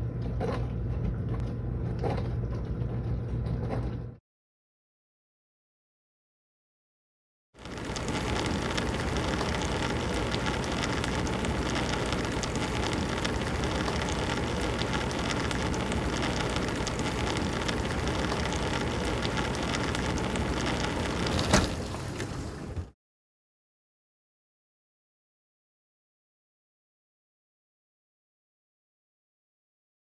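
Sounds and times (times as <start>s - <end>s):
dishwasher water spraying: 7.7s - 22.9s.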